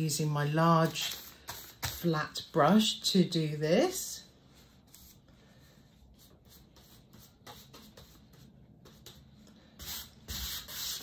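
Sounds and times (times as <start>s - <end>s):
brush scraping and dabbing paint: 0.4s - 3.0s, 4.2s - 11.0s.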